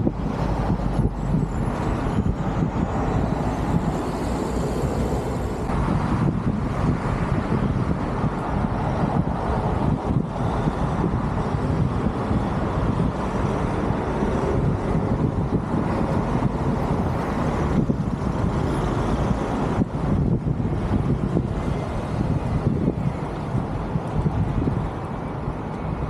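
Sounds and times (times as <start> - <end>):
road traffic rumble: 0.0 - 26.0.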